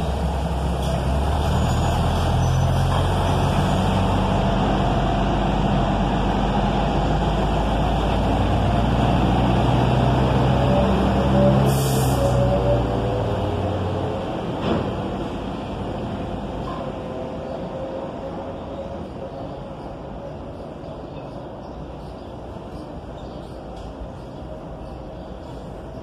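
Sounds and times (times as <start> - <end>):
diesel engine running: 0.0 - 16.6.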